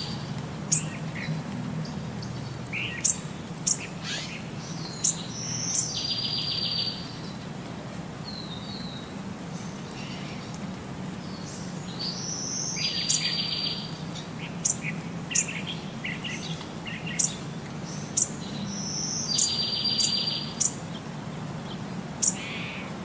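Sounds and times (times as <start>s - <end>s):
bird-like chirps and trill: 18.2s - 20.8s.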